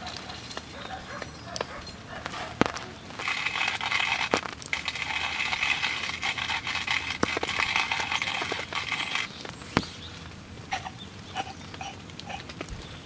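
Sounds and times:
grinder clicks: 0.5 - 9.9
coffee grinder crunching: 2.2 - 9.9.

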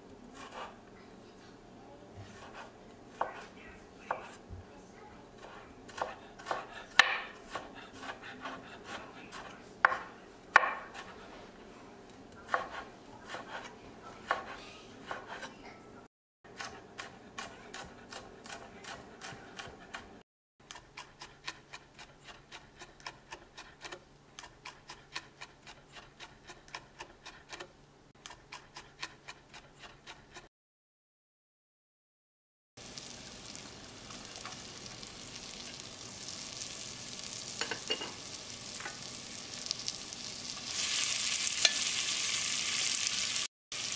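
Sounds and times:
knife chopping on wooden board: 0.4 - 0.8, 2.2 - 3.5, 4.1 - 4.5, 5.4 - 11.2, 12.5 - 15.5, 16.5 - 20.1.

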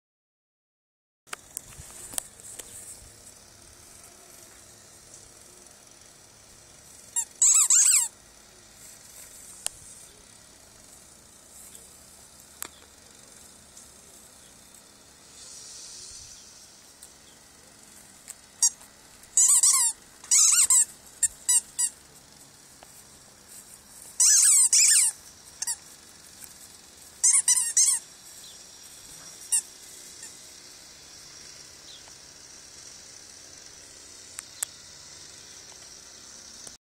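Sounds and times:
faint outdoor hiss: 1.3 - 36.8
rubber squeaky toy squeaking: 7.2 - 8.1, 19.4 - 22.0, 24.2 - 25.8, 27.2 - 28.1.

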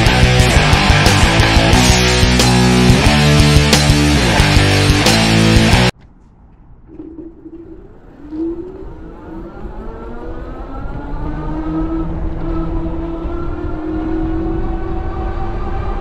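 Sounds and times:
wind and tyres on road: 5.9 - 16.0.

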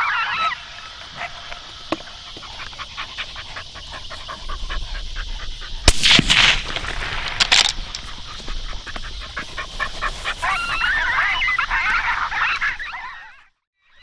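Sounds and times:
dog panting: 2.0 - 5.8, 7.7 - 10.8.

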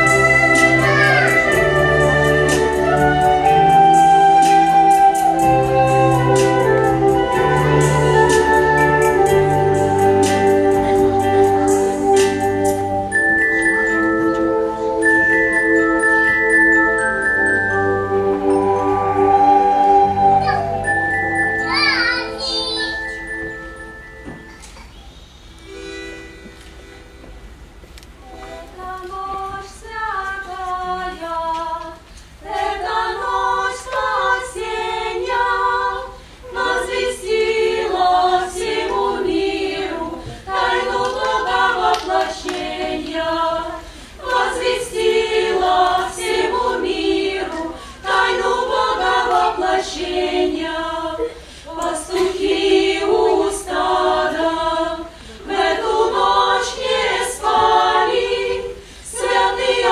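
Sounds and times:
choir singing: 0.0 - 21.7, 28.2 - 59.9.

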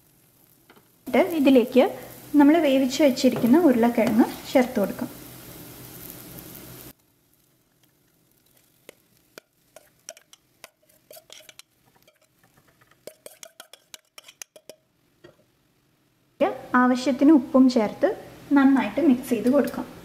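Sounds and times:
metal spoon clinking on bowl: 9.8 - 12.4, 13.1 - 14.8.

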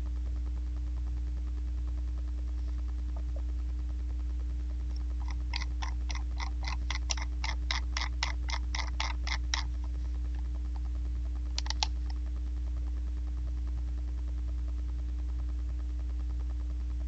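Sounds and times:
low electrical hum: 0.0 - 17.0
mouse scroll wheel clicking: 5.2 - 9.7, 11.6 - 12.0.

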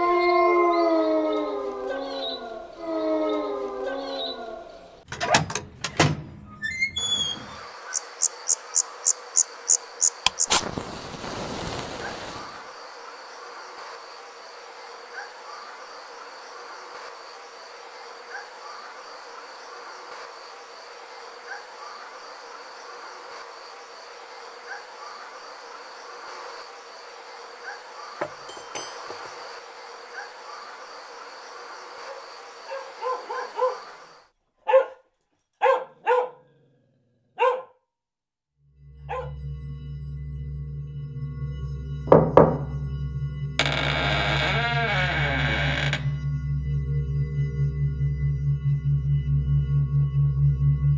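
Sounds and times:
crickets chirping: 0.0 - 5.0, 5.9 - 34.9, 41.2 - 47.9
dog barking: 15.1 - 15.8, 18.3 - 18.8, 21.4 - 22.1, 24.6 - 25.3, 27.6 - 28.2, 30.1 - 30.8, 32.0 - 34.0, 34.6 - 36.6, 37.3 - 37.8, 39.1 - 39.4
low musical drone: 38.7 - 43.6, 46.0 - 50.9.

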